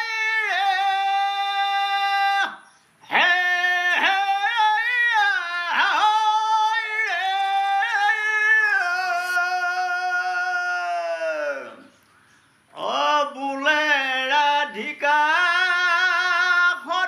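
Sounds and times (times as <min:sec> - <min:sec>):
person singing unaccompanied: 0:00.0 - 0:17.0.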